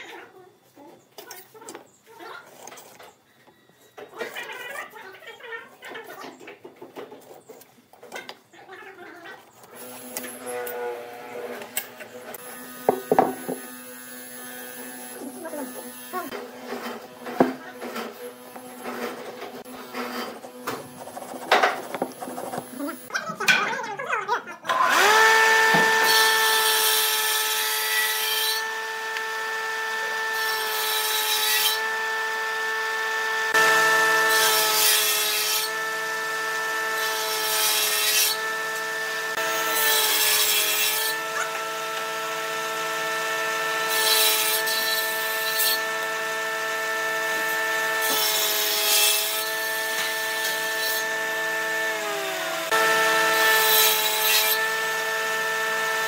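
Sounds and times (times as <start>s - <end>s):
saw cutting wood: 9.6s - 23.1s, 24.7s - 56.0s
table saw whine: 9.6s - 23.1s, 24.7s - 56.0s.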